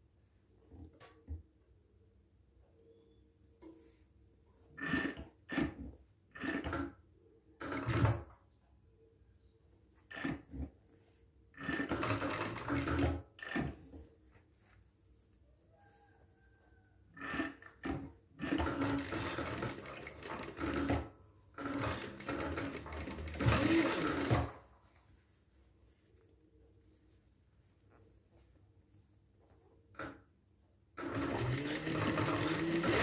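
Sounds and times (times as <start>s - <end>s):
sewing machine stitching: 4.8s - 7.0s, 7.6s - 8.3s, 11.5s - 14.0s, 17.2s - 24.6s, 31.0s - 33.0s.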